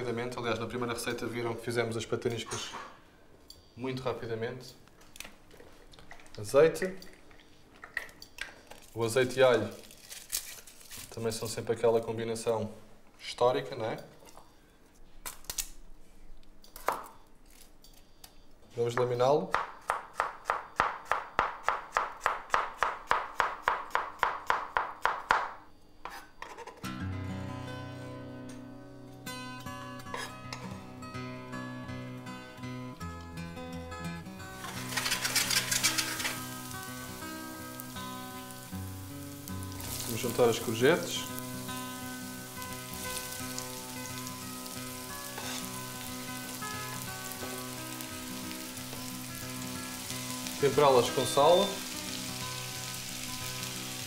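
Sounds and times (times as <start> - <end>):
background music: 26.9 - 54.0
vegetables sizzling in frying pan: 34.6 - 54.0.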